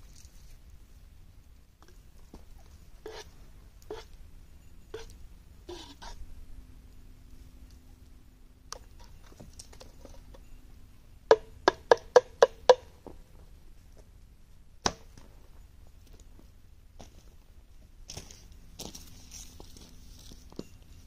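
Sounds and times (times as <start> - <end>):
tool tapping with ringing note: 10.2 - 13.0.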